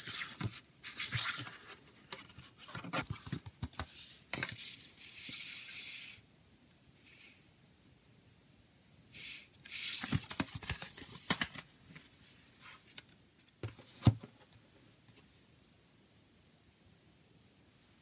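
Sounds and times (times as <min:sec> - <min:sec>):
cardboard rustling and scraping: 0:00.0 - 0:06.1, 0:09.6 - 0:14.5.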